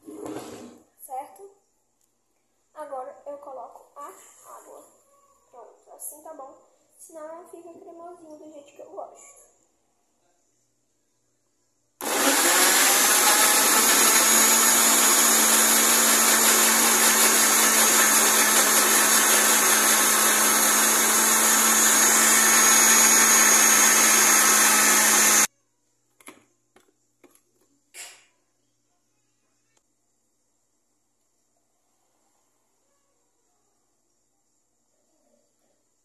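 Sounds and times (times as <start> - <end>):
electric blender running: 12.0 - 25.5.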